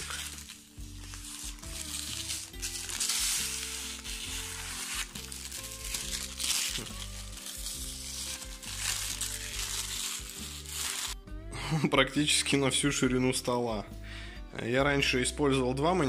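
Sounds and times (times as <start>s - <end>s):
plastic film peeling: 0.0s - 11.2s
background music with low notes: 0.0s - 16.0s.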